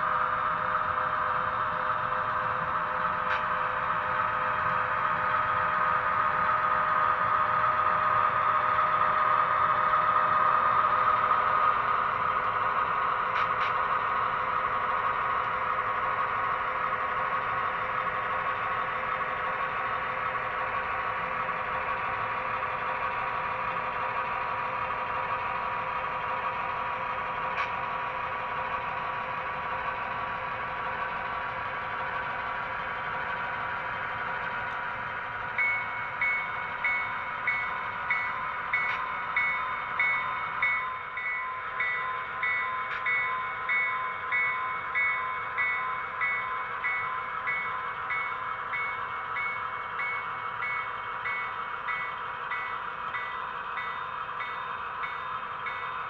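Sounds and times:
diesel engine drone: 0.0 - 56.0
locomotive bell ringing: 35.5 - 56.0.

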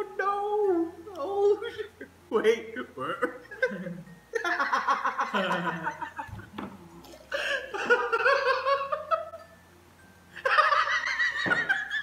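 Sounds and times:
man laughing hard: 3.2 - 6.4, 7.4 - 9.4.

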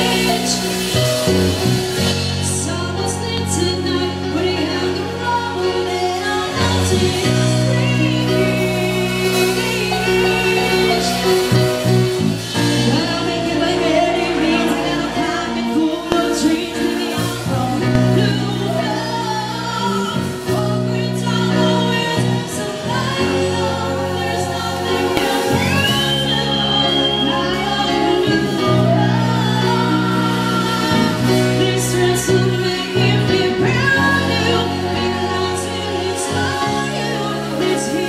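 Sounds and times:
live band playing: 0.0 - 38.0
woman singing: 0.0 - 38.0.

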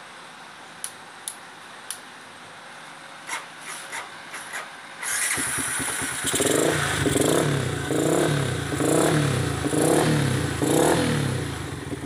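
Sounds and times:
motorcycle engine revving: 5.0 - 12.0.

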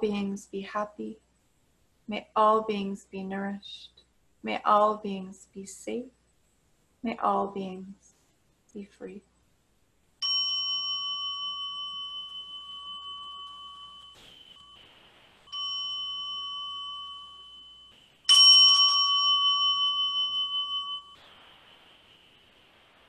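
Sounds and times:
meditation bell ringing: 10.2 - 21.4.

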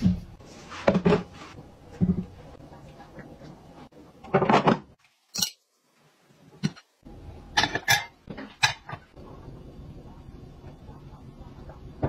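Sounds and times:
kitchenware clattering: 4.2 - 5.6, 6.6 - 6.9, 7.5 - 9.2.

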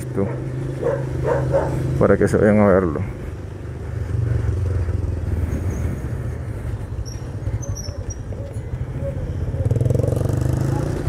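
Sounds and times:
motorcycle engine running: 0.3 - 11.0.

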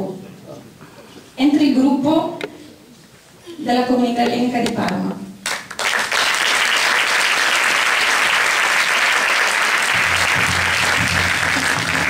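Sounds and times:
audience applauding: 5.4 - 12.0.

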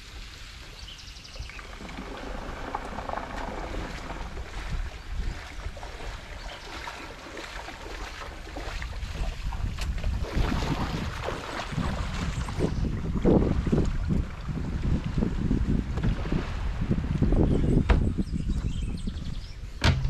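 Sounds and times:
footsteps splashing in water: 0.0 - 15.3
wind on microphone: 0.0 - 20.0.

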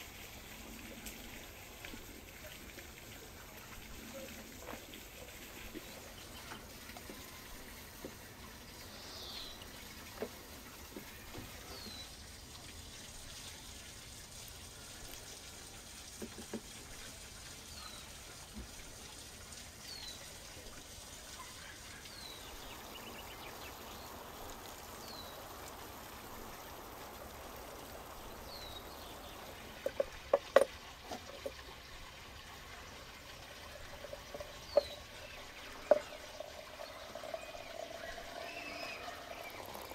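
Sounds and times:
water trickling into a teapot: 0.0 - 39.9
bird calling: 34.0 - 39.9.

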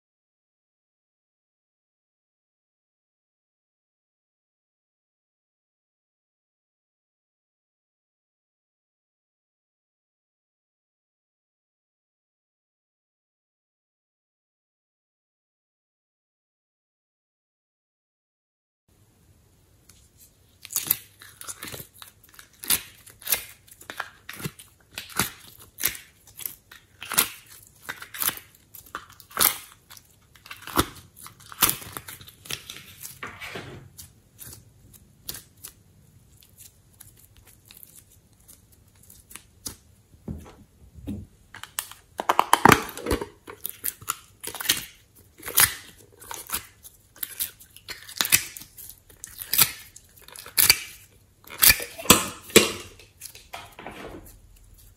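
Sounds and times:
sticky putty crackling and tearing: 20.6 - 33.2, 41.7 - 53.5.

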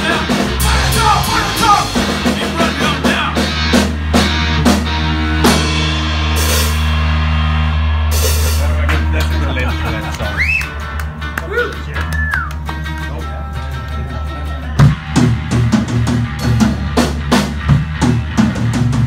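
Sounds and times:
rock band playing: 0.0 - 19.0
steady drum beat: 0.0 - 19.0.

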